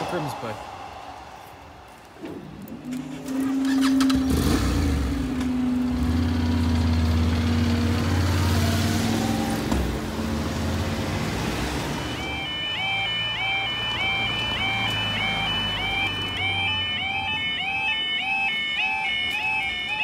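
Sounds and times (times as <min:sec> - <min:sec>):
vehicles driving over crossing: 0:02.2 - 0:20.0
warbling crossing alarm: 0:10.8 - 0:20.0.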